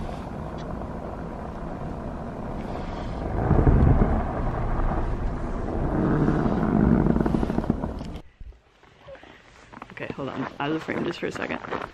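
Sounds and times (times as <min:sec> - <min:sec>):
wind buffeting microphone: 0:00.0 - 0:08.6.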